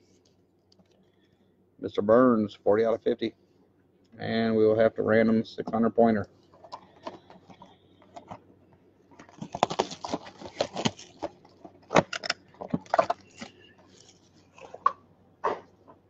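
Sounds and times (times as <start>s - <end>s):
shrink-wrap crinkling and tearing: 9.2s - 14.8s.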